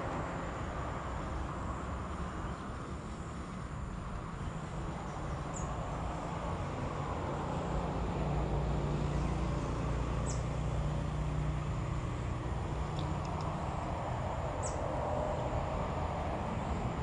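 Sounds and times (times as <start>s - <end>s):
distant road traffic rumble: 0.0s - 17.0s
faint ticks: 12.9s - 13.6s.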